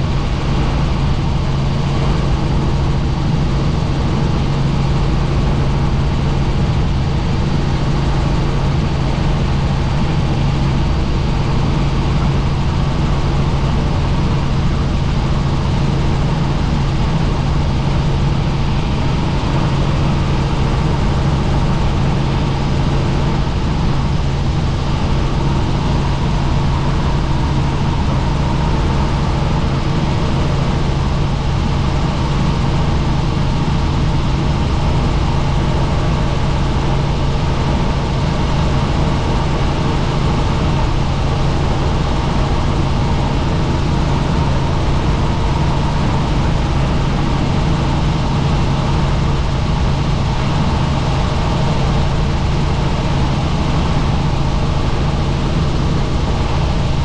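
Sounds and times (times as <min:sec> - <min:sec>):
helicopter engine and rotors: 0:00.0 - 0:57.0.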